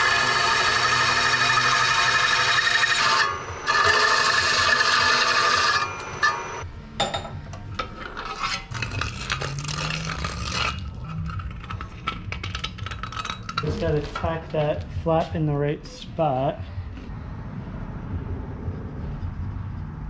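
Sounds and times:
milling machine cutting metal: 0:00.0 - 0:06.6.

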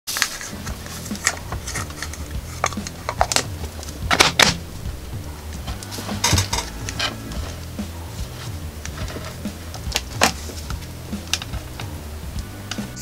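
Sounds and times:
plastic capsule clicking and rattling: 0:01.0 - 0:04.6.

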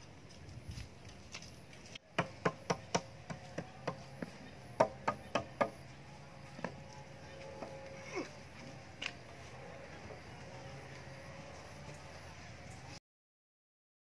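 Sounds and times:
tool knocking on wooden poles: 0:02.1 - 0:05.8, 0:06.6 - 0:06.8.

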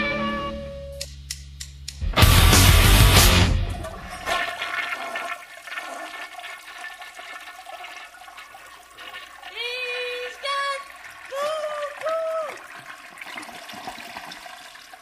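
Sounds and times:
short high tones: 0:00.0 - 0:01.0
toilet flushing: 0:03.4 - 0:15.0.

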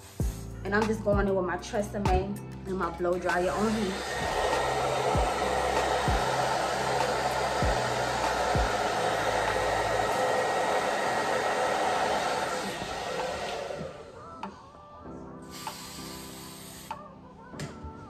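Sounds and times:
blow dryer rushing air: 0:02.8 - 0:14.5, 0:15.5 - 0:17.1.

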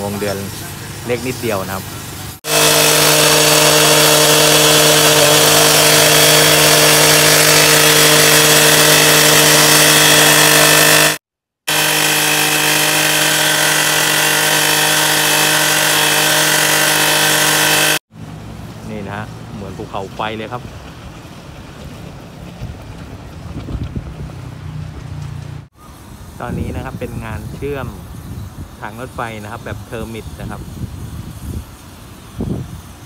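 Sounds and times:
cut-off saw grinding steel: 0:02.4 - 0:18.0.

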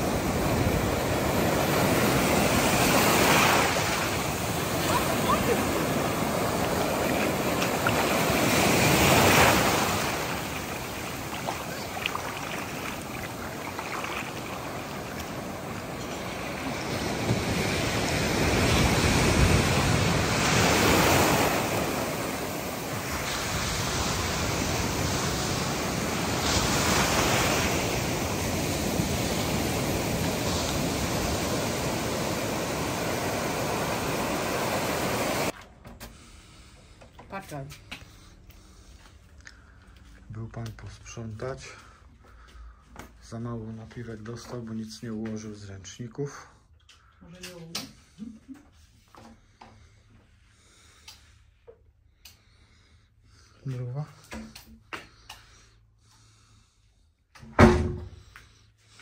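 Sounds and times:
ocean surf breaking: 0:00.0 - 0:35.6.

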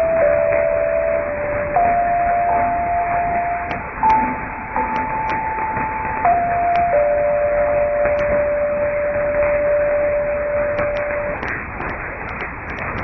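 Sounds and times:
electronic tone stepping down: 0:00.0 - 0:11.5
radio crackles: 0:00.0 - 0:13.0
radio reception hiss: 0:08.2 - 0:13.0.

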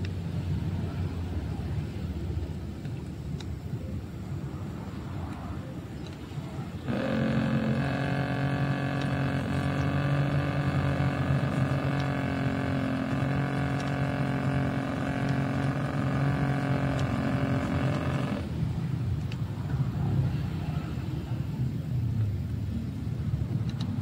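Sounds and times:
small electric motor buzzing hum: 0:06.7 - 0:18.6.

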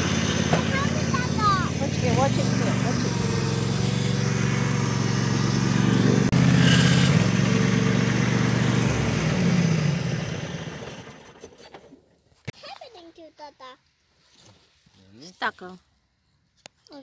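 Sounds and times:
riding lawn mower engine: 0:00.0 - 0:12.2.

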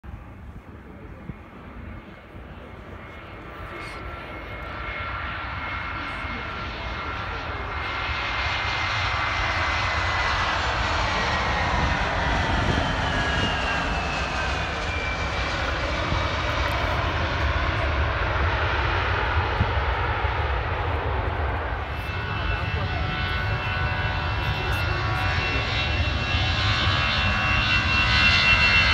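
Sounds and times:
high engine whine: 0:00.1 - 0:28.9
jet airliner engines passing: 0:00.1 - 0:28.9.

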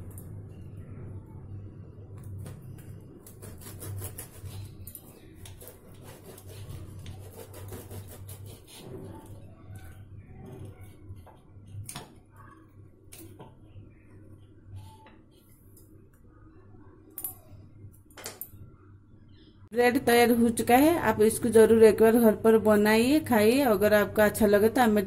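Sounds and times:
knife sawing bread crust: 0:03.2 - 0:04.7, 0:05.5 - 0:08.9.

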